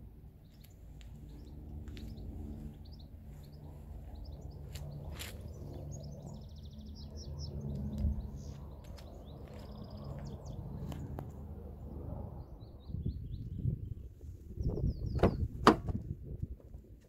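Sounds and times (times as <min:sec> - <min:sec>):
birds chirping: 0:00.4 - 0:11.2, 0:12.4 - 0:15.6
car door latch clicks: 0:15.2 - 0:16.0.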